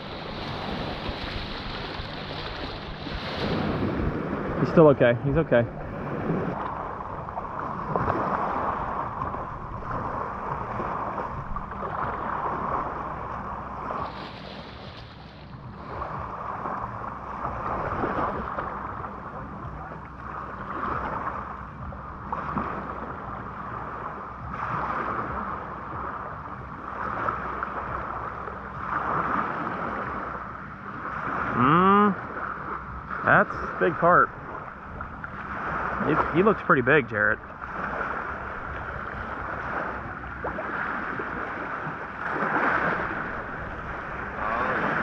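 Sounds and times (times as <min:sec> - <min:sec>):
waves washing onto pebbles: 0:00.0 - 0:05.6, 0:13.8 - 0:16.9
wind on microphone: 0:00.0 - 0:36.3, 0:37.4 - 0:45.0.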